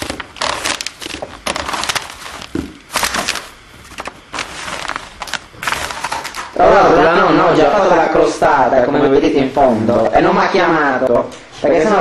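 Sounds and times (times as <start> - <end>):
foil tray crinkling: 0.0 - 6.6.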